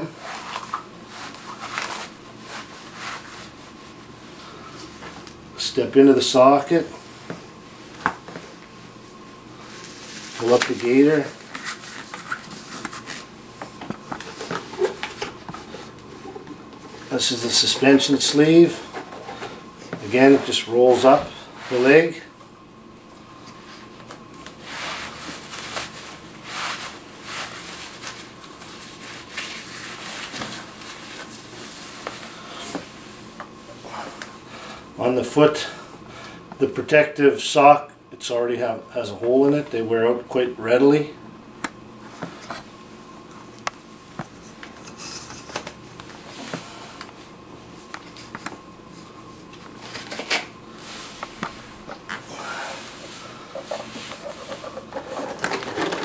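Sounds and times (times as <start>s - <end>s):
fabric sleeve rubbing and swishing: 0.2s - 4.1s, 24.6s - 32.1s.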